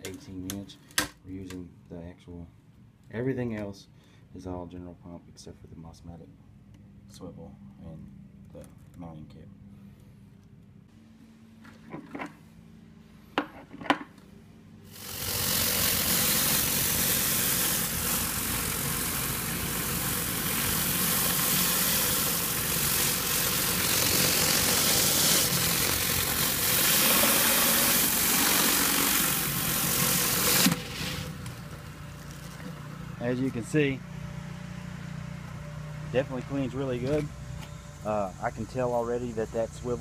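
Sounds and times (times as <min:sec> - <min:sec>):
high-pressure spray on concrete: 0:14.9 - 0:31.3
pressure washer engine hum: 0:14.9 - 0:40.0.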